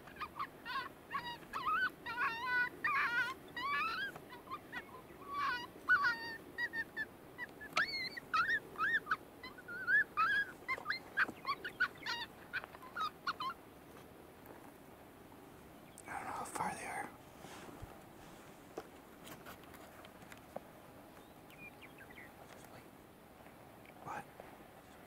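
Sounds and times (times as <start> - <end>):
coyote call yips and whines: 0.0 - 13.7, 21.5 - 22.3.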